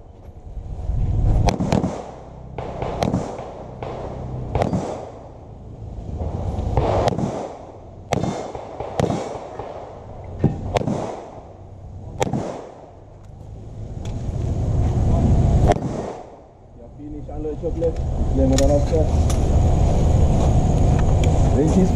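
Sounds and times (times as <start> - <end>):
handgun shots with echo: 1.4 - 5.2, 6.8 - 9.8, 10.5 - 11.4, 12.2 - 12.8, 15.7 - 16.3.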